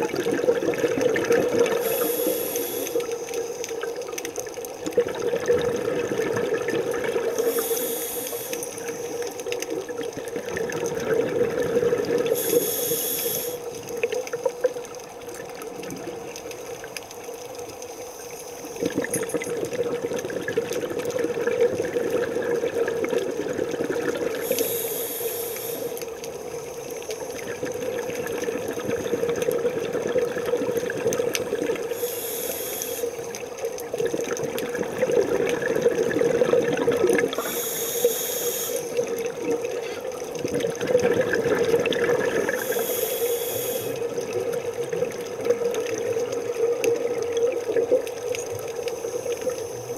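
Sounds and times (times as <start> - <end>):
bubbly rushing exhalations: 0.0 - 4.1, 4.8 - 14.8, 18.7 - 26.0, 27.3 - 49.9
regulator hissing inhales: 1.8 - 3.3, 7.3 - 9.4, 12.3 - 13.7, 24.4 - 26.0, 31.9 - 33.3, 37.4 - 39.0, 42.5 - 44.0.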